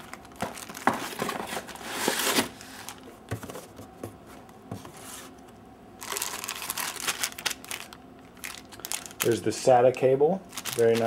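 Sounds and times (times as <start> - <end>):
plastic wrapping crinkling: 0.0 - 3.0, 6.0 - 11.0.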